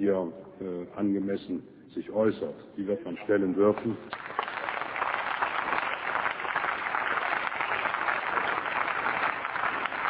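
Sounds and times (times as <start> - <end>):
crowd applauding: 3.7 - 10.0.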